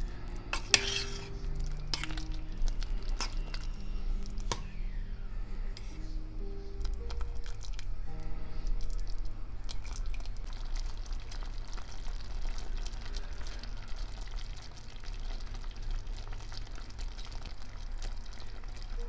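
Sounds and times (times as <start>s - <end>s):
low steady hum: 0.0s - 19.0s
thick syrup bubbling and popping: 8.7s - 19.0s.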